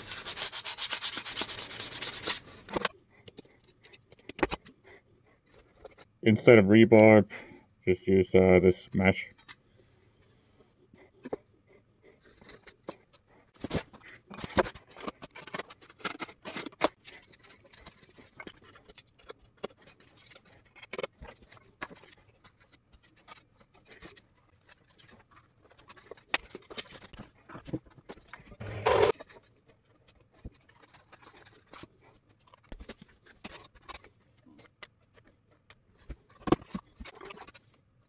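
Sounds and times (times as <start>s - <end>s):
foam pieces tapping and scraping: 13.6s - 28.5s, 29.1s - 37.8s.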